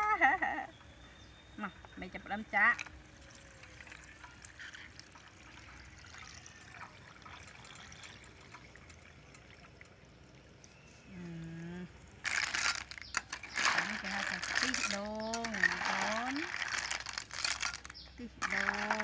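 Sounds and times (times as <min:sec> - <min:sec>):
liquid trickling into wok: 0:03.1 - 0:10.8
loud clatter: 0:12.2 - 0:19.0.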